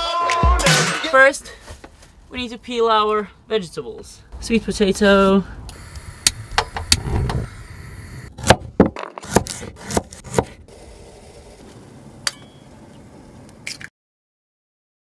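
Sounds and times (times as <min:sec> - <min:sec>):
knife chopping on wooden board: 0:08.4 - 0:10.6.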